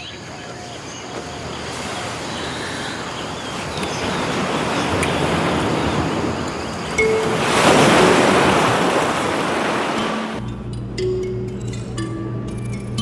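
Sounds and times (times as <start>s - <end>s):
ocean surf rushing: 1.0s - 10.4s.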